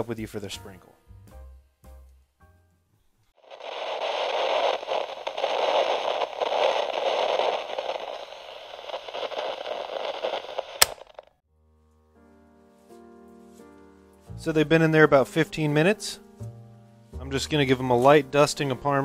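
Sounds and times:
crackling static hiss: 0:03.3 - 0:11.4
sharp click: 0:10.3 - 0:11.3.

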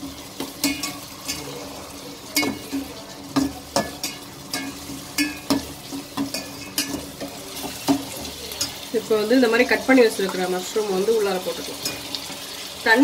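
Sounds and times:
masala sizzling: 0:00.0 - 0:13.0
metal ladle knocking on pot: 0:03.4 - 0:08.3.

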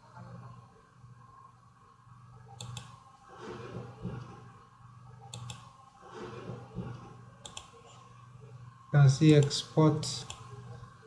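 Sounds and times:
computer mouse clicks: 0:02.5 - 0:03.0, 0:05.2 - 0:05.7, 0:06.8 - 0:07.8, 0:09.3 - 0:09.6, 0:10.2 - 0:10.5.

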